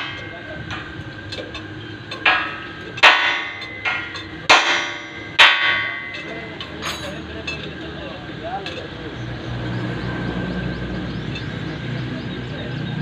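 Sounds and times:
hammer striking metal: 0:00.0 - 0:07.8.

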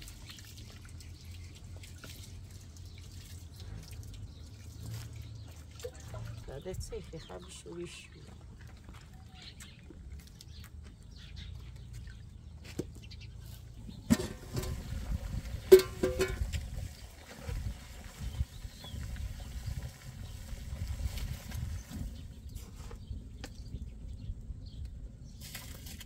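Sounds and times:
low irregular rumble: 0:13.7 - 0:25.4
metal pots knocking together: 0:14.1 - 0:16.7.

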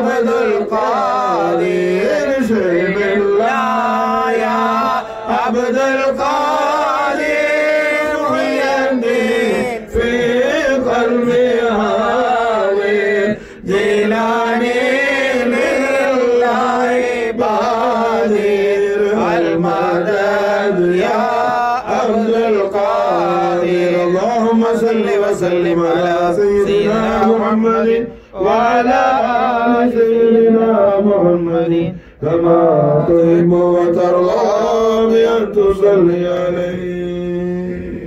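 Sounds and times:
man chanting a devotional hymn: 0:00.0 - 0:38.0
man breathing: 0:13.3 - 0:13.7, 0:28.1 - 0:28.4, 0:31.9 - 0:32.2.

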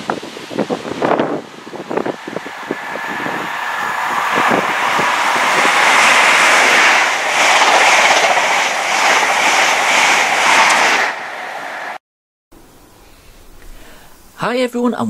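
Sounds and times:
train passing at speed: 0:00.0 - 0:12.0.

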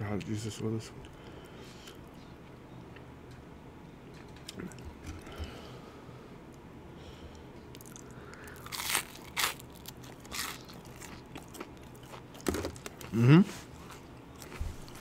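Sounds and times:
chewing crispy fried chicken: 0:07.7 - 0:15.0.

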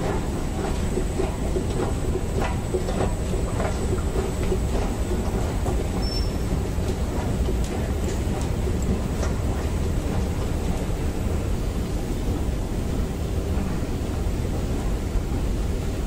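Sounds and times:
light clicks of moving steps: 0:00.0 - 0:10.9
escalator mechanical rumble: 0:00.0 - 0:16.0.

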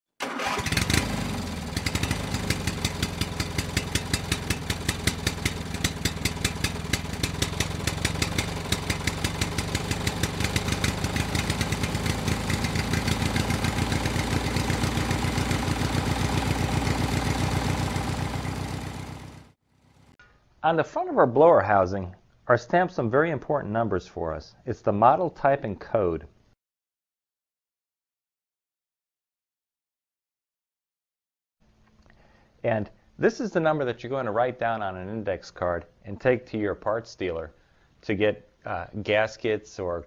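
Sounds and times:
small gasoline engine running: 0:00.2 - 0:20.1.

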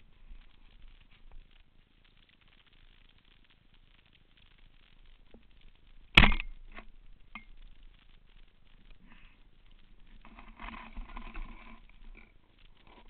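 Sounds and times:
faint clicks: 0:00.0 - 0:13.0
rough rustling noise: 0:00.0 - 0:13.0
speargun crack underwater: 0:06.1 - 0:07.6.

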